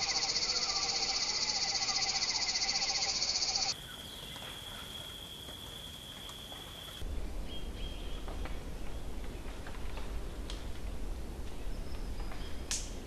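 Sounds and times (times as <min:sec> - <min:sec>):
animal chorus of pulsing trills: 0:00.0 - 0:03.7.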